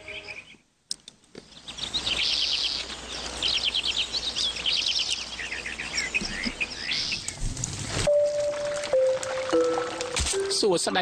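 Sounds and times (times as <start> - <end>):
birds chirping in rapid trills: 0.0 - 0.6, 1.4 - 7.4.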